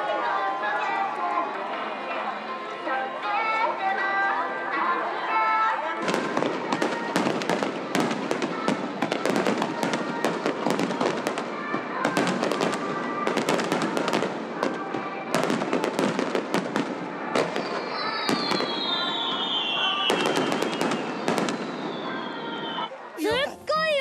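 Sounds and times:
fireworks bangs and crackles: 6.0 - 24.0.

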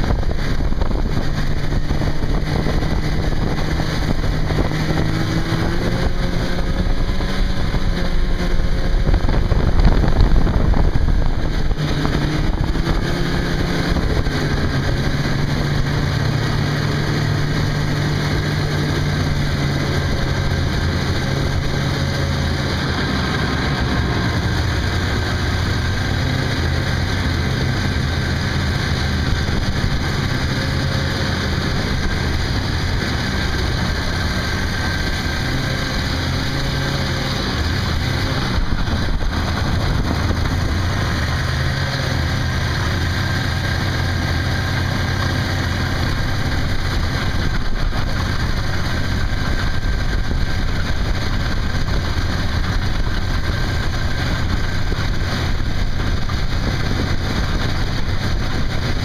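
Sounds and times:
snowmobile engine running: 0.0 - 59.0
snowmobile track noise: 0.0 - 59.0
wind noise: 0.0 - 59.0.

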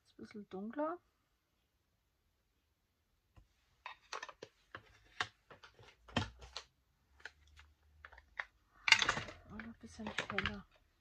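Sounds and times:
light clicks and taps of supplies: 3.4 - 11.0.

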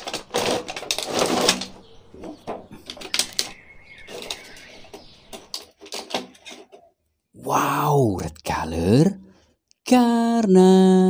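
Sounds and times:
plastic packaging crinkling: 0.0 - 1.9.

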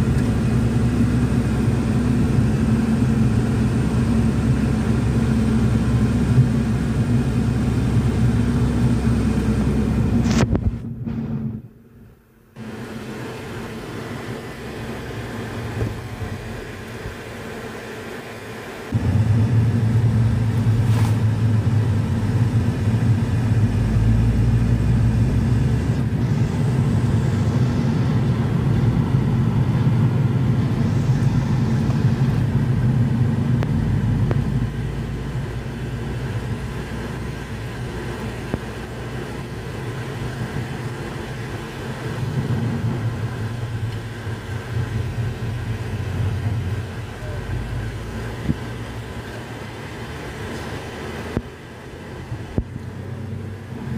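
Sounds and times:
car cabin road and engine drone: 0.0 - 53.9.

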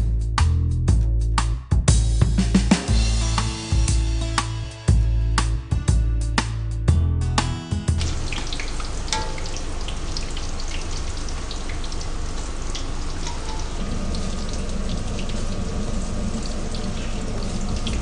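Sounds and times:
chicken deep-frying in oil: 8.0 - 18.0.

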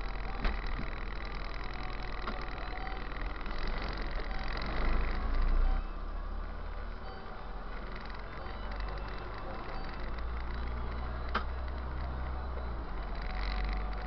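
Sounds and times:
bus engine and road rumble: 0.0 - 14.0.

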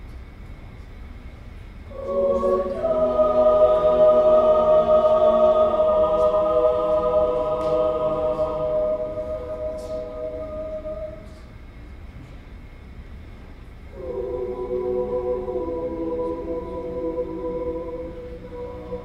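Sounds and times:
choir singing held chord: 1.9 - 11.5, 13.9 - 19.0.

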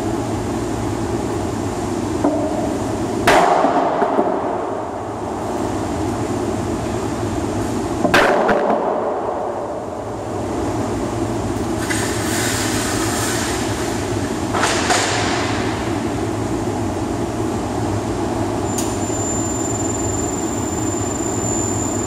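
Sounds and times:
hiss: 11.8 - 14.1.

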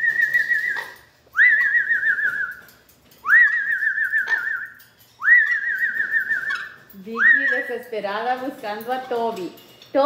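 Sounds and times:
parrot whistling: 0.0 - 7.7.

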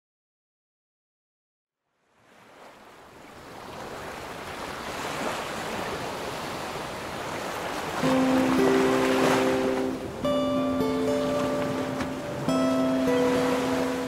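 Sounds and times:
ocean surf on beach: 2.1 - 14.0
held music notes: 8.0 - 14.0.

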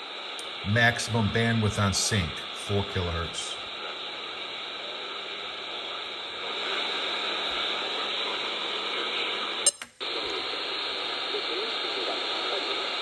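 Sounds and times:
faint hum: 0.0 - 13.0
radio static hiss: 0.0 - 13.0.

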